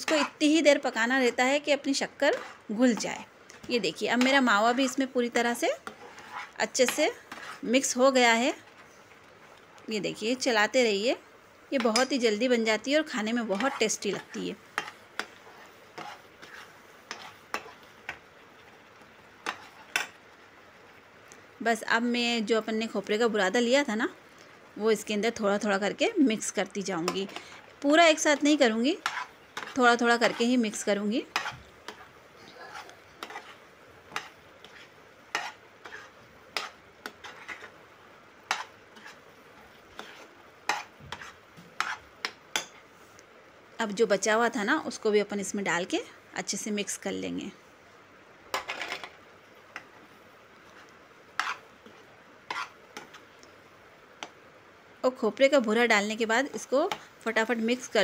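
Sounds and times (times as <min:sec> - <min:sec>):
metal spatula scraping pan: 0:00.0 - 0:08.8, 0:11.8 - 0:18.2, 0:19.4 - 0:20.2, 0:27.0 - 0:37.8, 0:38.4 - 0:42.8, 0:50.7 - 0:53.2
faint sizzle of cooking mixture: 0:00.0 - 0:58.0.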